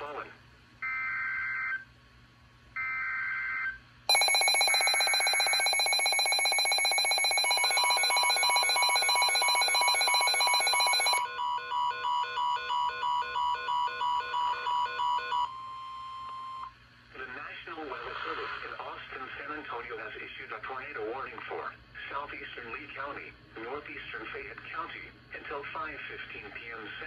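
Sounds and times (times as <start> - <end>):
pulsing electronic alarm: 2.9 - 15.6
warbling digital data tones: 4.1 - 11.4
steady warning tone: 4.1 - 15.6.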